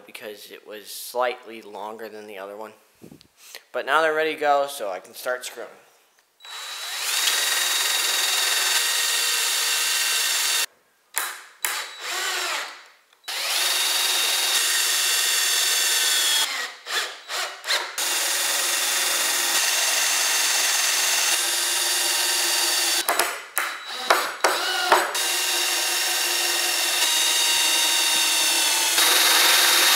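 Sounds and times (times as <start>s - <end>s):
cordless drill motor whining: 6.4s - 10.7s, 11.7s - 23.0s, 23.8s - 29.9s
drill trigger bursts: 6.4s - 10.7s, 11.6s - 23.1s, 23.7s - 29.9s.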